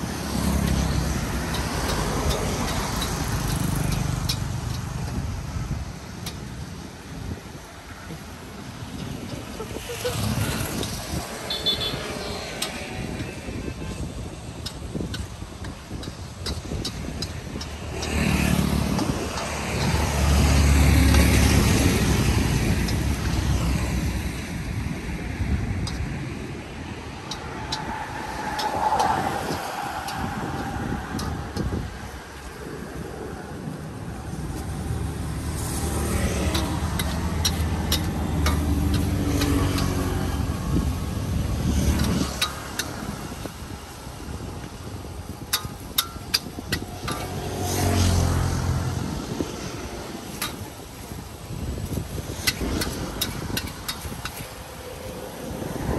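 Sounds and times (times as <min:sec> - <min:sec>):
road traffic rumble: 0:00.0 - 0:55.9
motor vehicle passing: 0:17.5 - 0:24.9, 0:26.7 - 0:44.4, 0:46.6 - 0:55.9.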